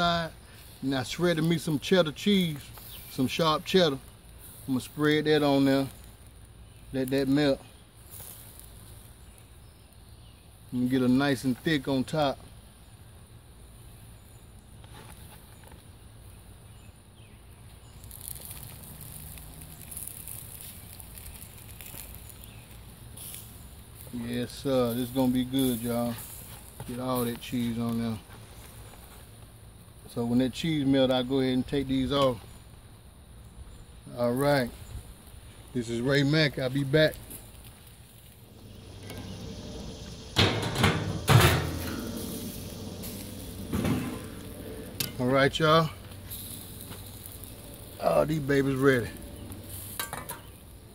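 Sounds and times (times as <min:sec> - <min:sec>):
burgers sizzling on a grill: 0:00.0 - 0:50.9
fire crackling: 0:00.0 - 0:50.9
low outdoor rumble: 0:34.0 - 0:50.9
steel sheet clanking: 0:38.5 - 0:46.8.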